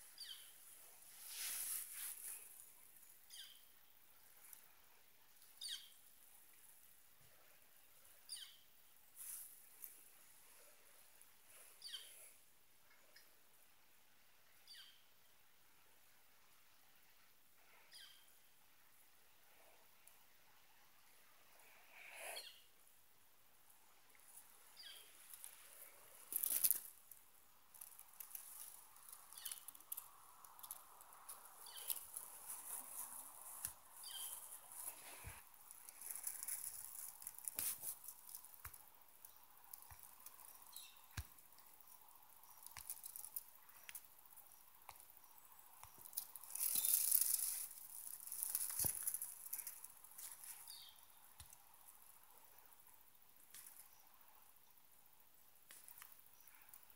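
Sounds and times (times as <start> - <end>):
grass rustling: 0.0 - 3.5, 24.2 - 52.4.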